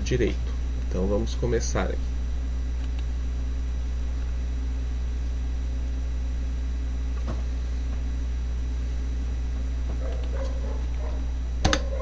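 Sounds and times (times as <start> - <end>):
low electrical hum: 0.0 - 12.0
faint click: 2.8 - 3.1.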